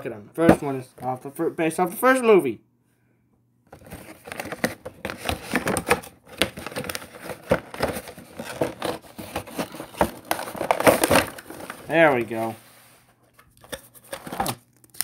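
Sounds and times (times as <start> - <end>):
cardboard and plastic crinkling: 3.7 - 12.6, 13.3 - 15.0.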